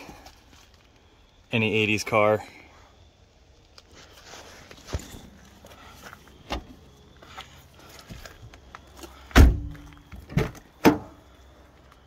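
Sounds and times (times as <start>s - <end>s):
car door shutting thunk: 9.3s - 11.1s.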